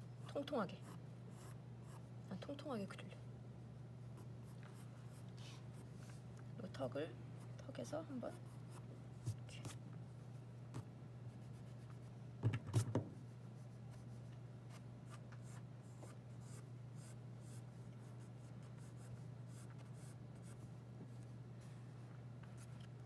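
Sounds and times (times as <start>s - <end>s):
steady low hum: 0.0s - 23.0s
pencil scratching on paper: 0.8s - 2.1s.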